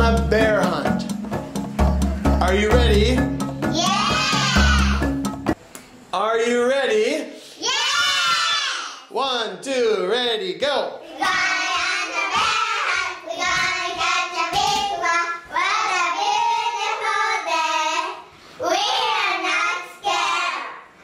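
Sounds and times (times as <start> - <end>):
girls chanting in unison: 11.1 - 20.8.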